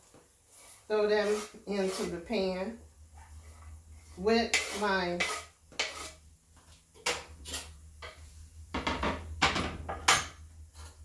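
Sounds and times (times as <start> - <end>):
knife scraping on cutting board: 0.5 - 2.2, 3.4 - 6.2, 7.0 - 7.8.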